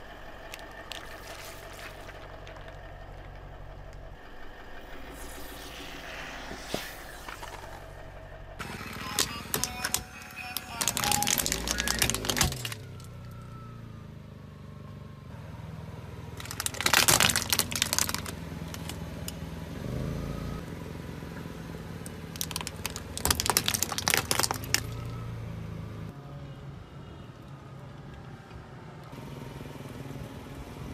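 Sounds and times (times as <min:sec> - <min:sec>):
car engine running: 0:00.0 - 0:26.1
plastic toy cracking: 0:08.6 - 0:13.1, 0:16.4 - 0:19.0, 0:22.3 - 0:25.1.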